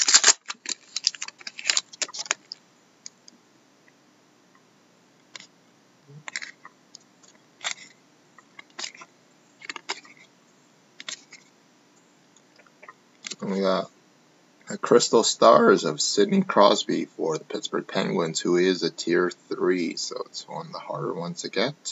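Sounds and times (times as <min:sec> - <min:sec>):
wrapper crackling as torn open: 0:00.0 - 0:02.6.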